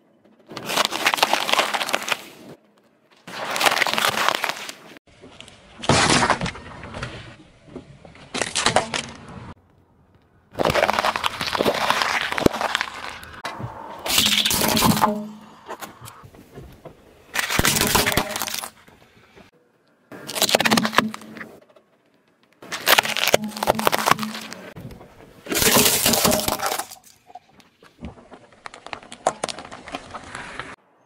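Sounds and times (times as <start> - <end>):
tyre crushing objects: 0.5 - 2.6, 3.3 - 4.8, 10.5 - 15.5, 17.3 - 18.9, 20.2 - 21.5, 22.6 - 24.8, 25.4 - 27.1.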